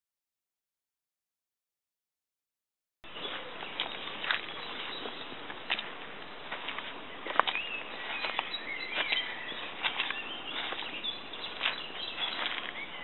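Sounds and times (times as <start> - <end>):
bird chirps: 3.1 - 5.4, 6.7 - 13.0
footsteps on dry leaves: 3.1 - 13.0.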